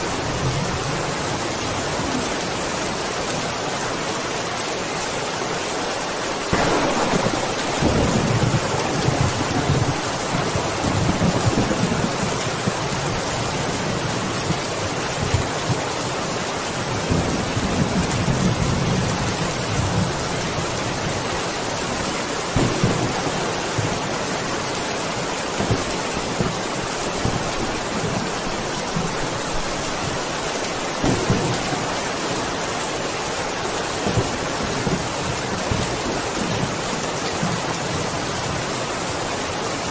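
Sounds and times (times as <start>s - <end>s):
heavy rain: 0.0s - 39.9s
thunder rumbling: 6.5s - 16.2s, 22.0s - 38.2s.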